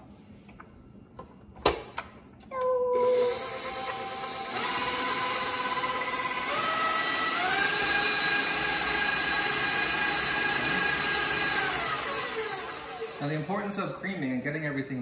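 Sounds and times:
stand mixer motor whine: 3.0s - 13.8s.

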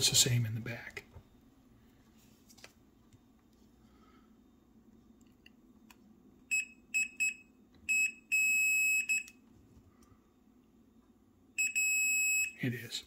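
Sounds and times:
multimeter beeps: 6.5s - 9.4s, 11.6s - 12.6s.

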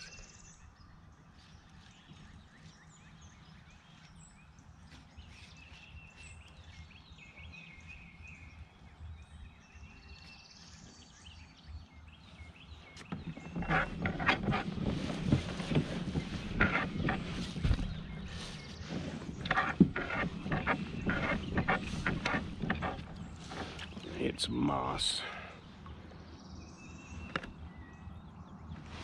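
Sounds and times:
songbird calls and trills: 0.0s - 29.0s
rustling handling noise: 13.0s - 25.4s.

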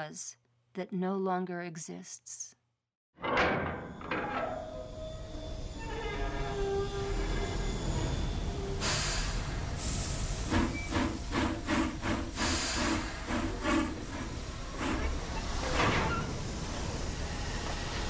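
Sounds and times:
steam hissing: 7.0s - 18.0s
rhythmic steam chuffs: 7.1s - 18.0s.

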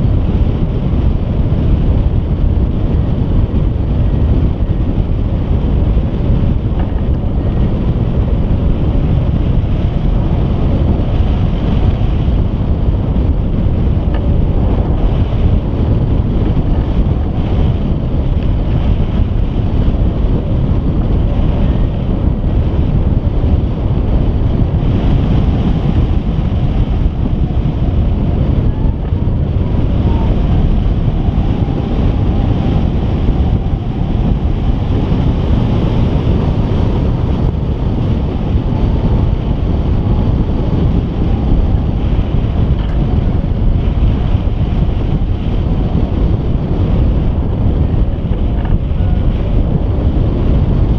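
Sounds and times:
airflow buffeting microphone: 0.0s - 50.9s.

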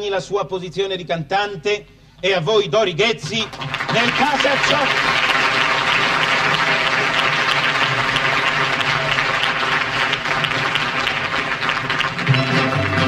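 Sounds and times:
audience applauding: 3.3s - 13.0s
band playing: 12.2s - 13.0s.

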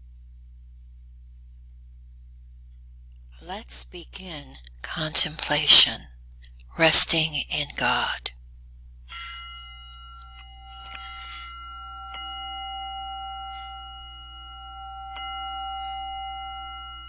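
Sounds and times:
meditation bell ringing: 9.1s - 17.0s.

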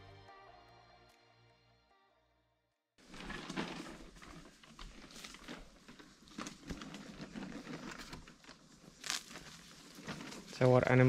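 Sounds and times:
plastic bag rustling and crinkling: 3.0s - 11.0s.

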